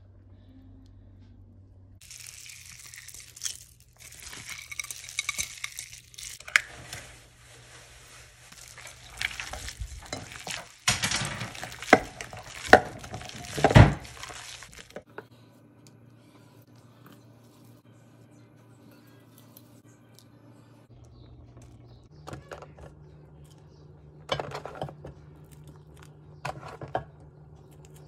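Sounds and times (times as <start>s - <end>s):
hands squishing raw meat: 2.0s - 7.1s, 7.9s - 15.0s.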